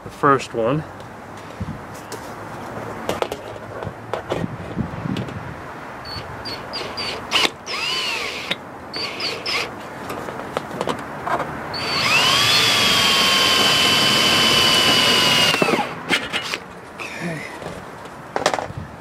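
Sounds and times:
power drill whining: 0:06.7 - 0:09.7, 0:11.7 - 0:16.0.

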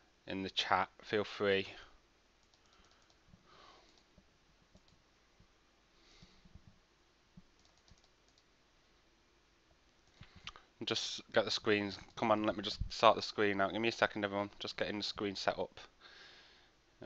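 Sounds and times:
keyboard and mouse clicks: 0:02.4 - 0:03.2, 0:03.9 - 0:05.0, 0:07.5 - 0:08.5.

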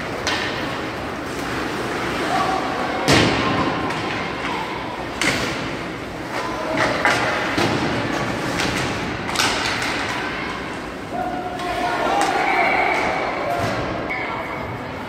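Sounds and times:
rink and crowd noise: 0:00.0 - 0:15.0
puck and stick knocks: 0:00.2 - 0:00.7, 0:05.2 - 0:10.4.

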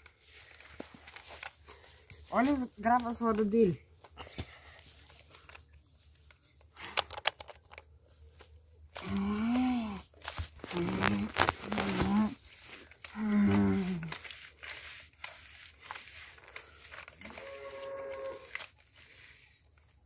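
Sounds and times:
toy tractor squelching in mud: 0:06.6 - 0:20.0.

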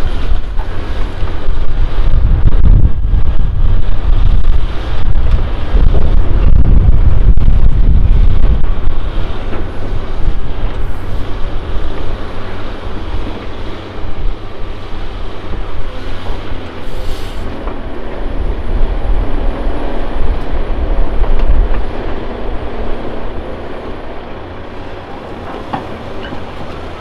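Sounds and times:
excavator engine and hydraulics: 0:00.0 - 0:27.0
truck diesel engine running: 0:00.0 - 0:27.0.

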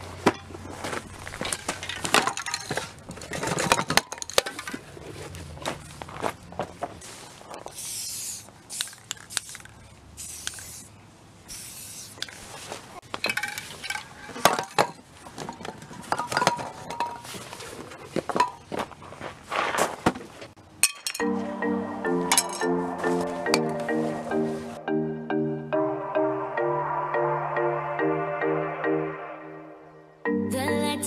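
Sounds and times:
metal cans clinking: 0:01.4 - 0:04.8, 0:13.1 - 0:17.4, 0:20.8 - 0:21.3
spray paint can hissing: 0:07.7 - 0:10.9, 0:11.5 - 0:12.4
music: 0:21.2 - 0:31.0.

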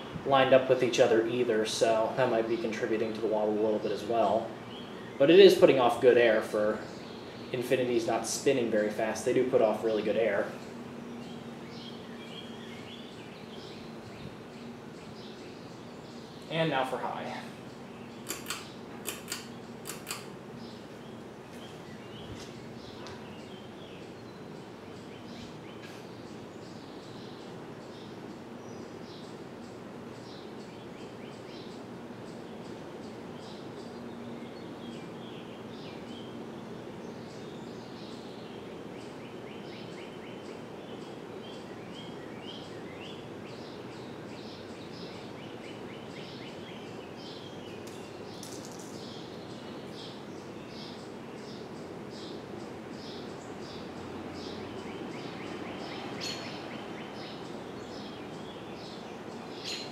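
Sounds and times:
birds chirping: 0:00.0 - 0:59.9
ceiling fan running: 0:00.0 - 0:59.9.

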